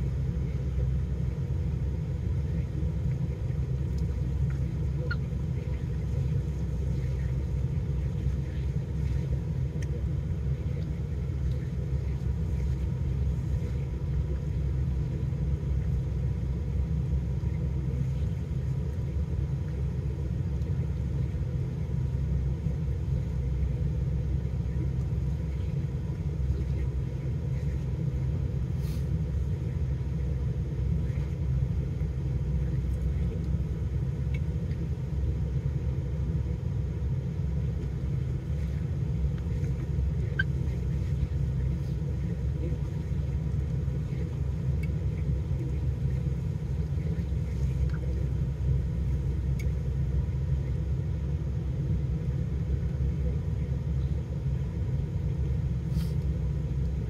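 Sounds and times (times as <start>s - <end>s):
car engine idling: 0.0s - 57.0s
faint clicks: 43.6s - 46.2s, 49.5s - 49.8s.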